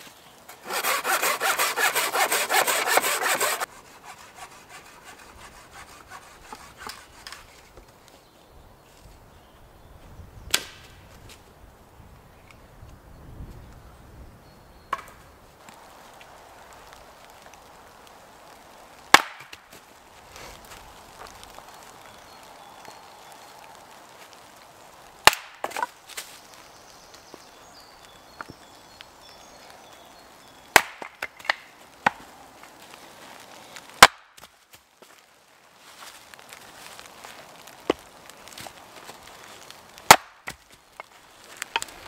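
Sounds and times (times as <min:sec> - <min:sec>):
axe splitting log: 0:00.5 - 0:03.7, 0:19.1 - 0:19.6, 0:25.2 - 0:25.9, 0:30.7 - 0:32.2, 0:34.0 - 0:34.3, 0:40.1 - 0:40.6.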